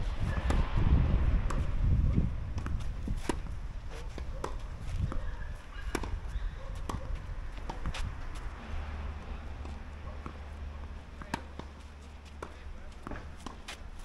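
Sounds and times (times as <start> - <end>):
low rumble: 0.0 - 3.8
tennis ball struck and bouncing: 0.1 - 0.7, 1.4 - 8.5, 9.1 - 14.0
footsteps on court: 2.6 - 8.6, 9.6 - 14.0.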